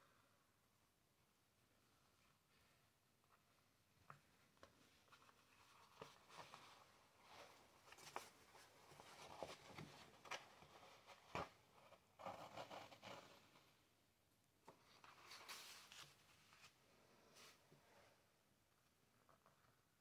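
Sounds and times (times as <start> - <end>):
paper rustling and scratching: 14.7 - 16.8.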